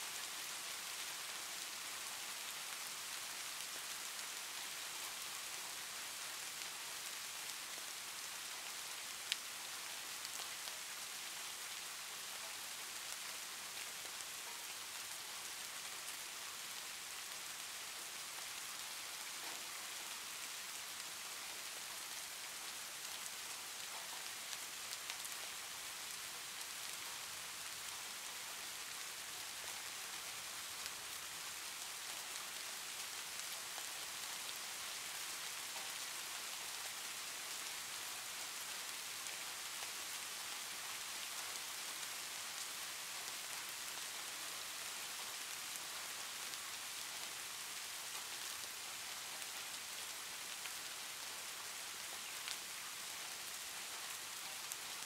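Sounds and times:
rain falling: 0:00.0 - 0:55.0.

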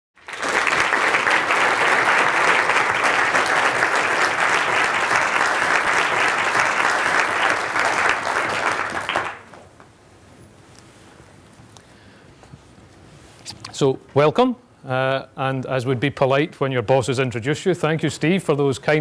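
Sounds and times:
audience applauding: 0:00.2 - 0:09.7.

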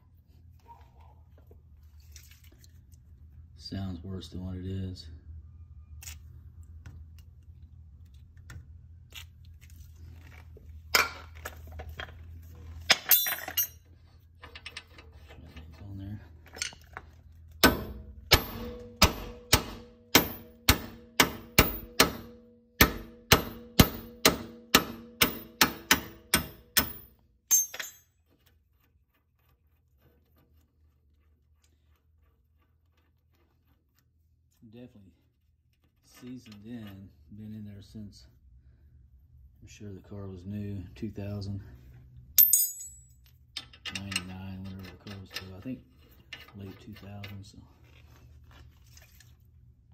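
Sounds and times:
hammer striking metal: 0:17.6 - 0:28.1.

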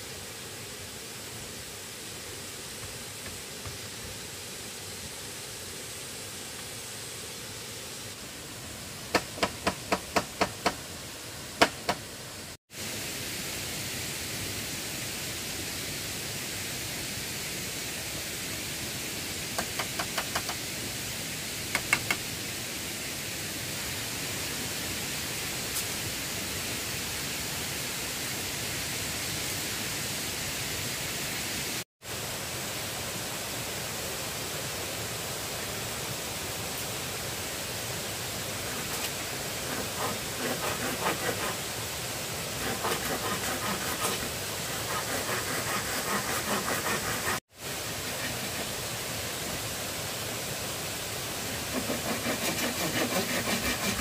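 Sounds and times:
background hiss: 0:00.0 - 0:54.0
tool strikes on wood: 0:09.1 - 0:10.8, 0:11.6 - 0:12.1, 0:19.6 - 0:20.6, 0:21.7 - 0:22.2.

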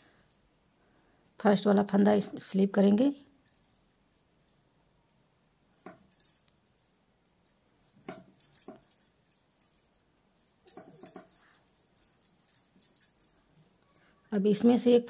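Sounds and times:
knitting needles clicking: 0:05.1 - 0:13.9.

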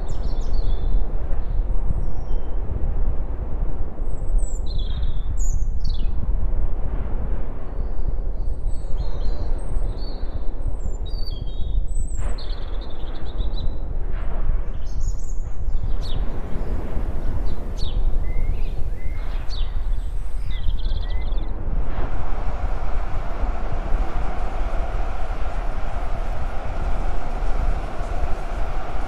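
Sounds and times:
low rumbling background noise: 0:15.6 - 0:29.0.

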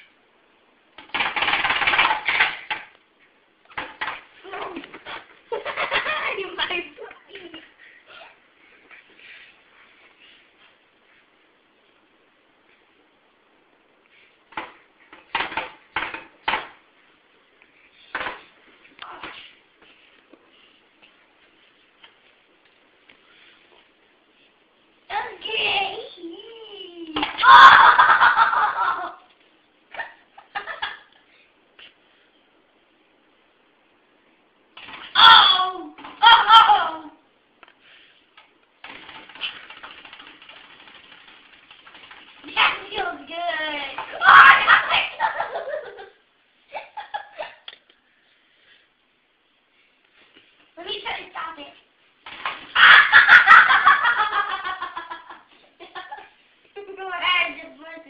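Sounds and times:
faint steady rustling: 0:04.2 - 0:15.9, 0:16.8 - 0:27.1, 0:47.9 - 0:52.3
boy laughing: 0:05.5 - 0:08.4, 0:27.4 - 0:29.3, 0:29.9 - 0:31.1, 0:44.2 - 0:47.7, 0:52.7 - 0:56.4.

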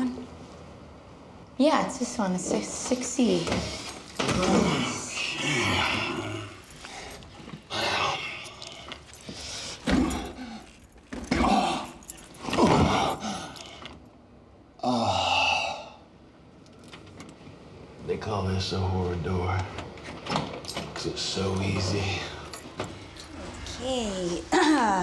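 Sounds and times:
man grunting and groaning: 0:04.2 - 0:06.7, 0:11.3 - 0:13.6, 0:14.8 - 0:16.0.

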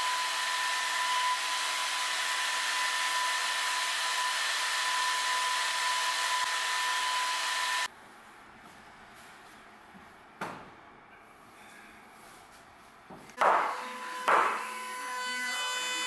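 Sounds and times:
electric blower motor whining: 0:00.0 - 0:07.9.

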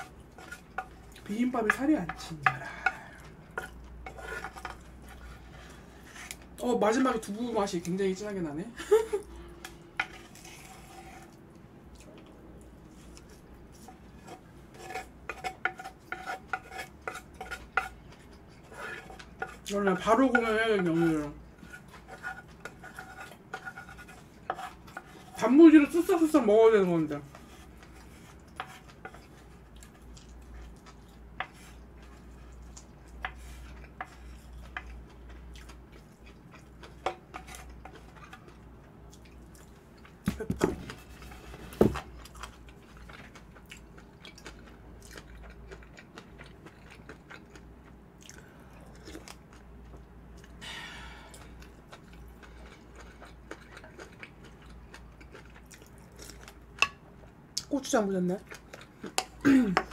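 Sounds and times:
chewing mouth sounds: 0:42.2 - 0:50.6, 0:51.3 - 0:56.6.

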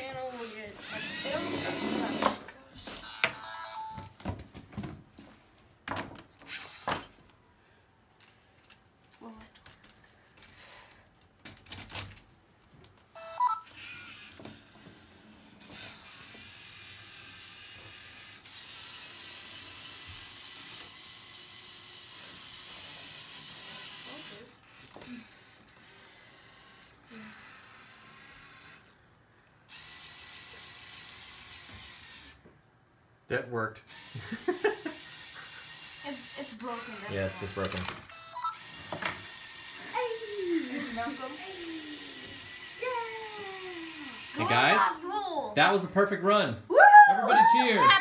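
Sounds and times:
robot motor whirring: 0:00.0 - 0:02.4, 0:06.4 - 0:07.0, 0:13.7 - 0:29.0, 0:29.7 - 0:32.4, 0:33.9 - 0:45.0.

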